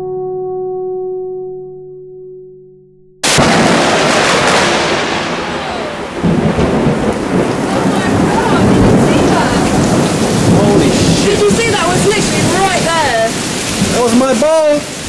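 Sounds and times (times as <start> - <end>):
loud rolling thunder: 3.2 - 15.0
rain falling: 3.2 - 15.0.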